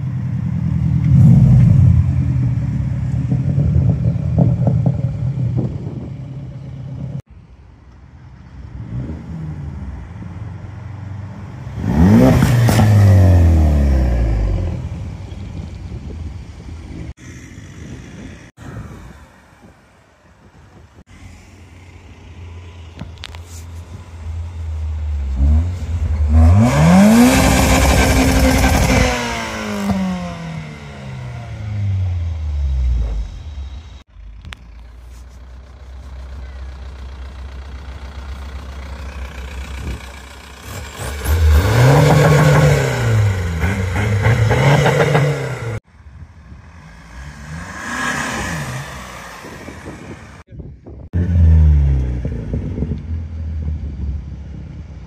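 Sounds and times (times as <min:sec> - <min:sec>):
car engines revving: 0:08.2 - 0:19.8, 0:20.5 - 0:50.5.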